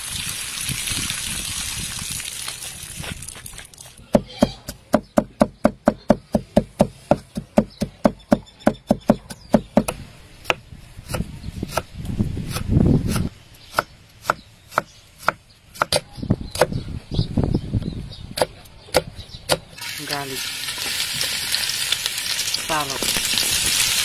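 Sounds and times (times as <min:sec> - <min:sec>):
knife chopping on wooden board: 0:04.1 - 0:11.9, 0:12.5 - 0:16.0.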